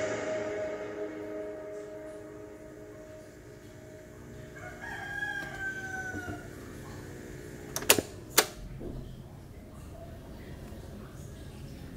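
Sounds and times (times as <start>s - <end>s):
boombox playing music: 0.0s - 4.7s
falling tone: 0.0s - 6.2s
cassette deck keys clicking: 7.7s - 8.6s.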